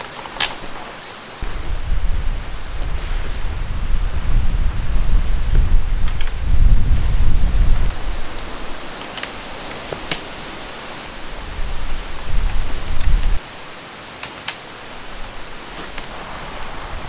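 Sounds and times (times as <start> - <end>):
tent poles clicking: 0.0 - 1.9, 6.0 - 7.0, 8.6 - 11.0, 14.1 - 16.6
steady outdoor hiss: 0.0 - 17.0
wind buffeting microphone: 1.4 - 13.4, 14.9 - 17.0.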